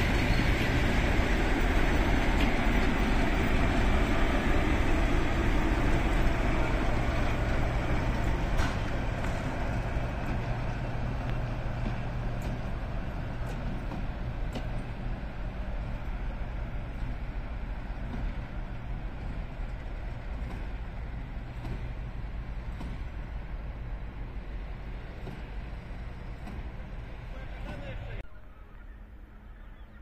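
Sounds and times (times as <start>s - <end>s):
diesel locomotive engine humming: 0.0s - 30.0s.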